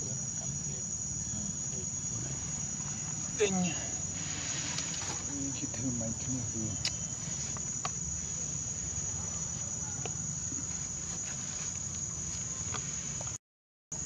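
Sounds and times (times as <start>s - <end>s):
insects droning: 0.0s - 13.4s.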